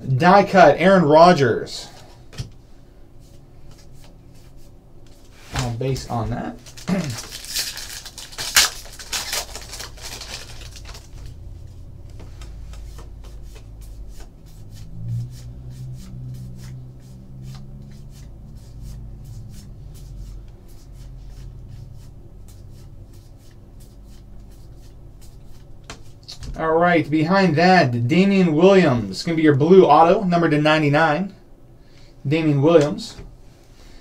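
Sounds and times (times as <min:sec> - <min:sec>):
foil wrapper crinkling: 0:06.6 - 0:11.7.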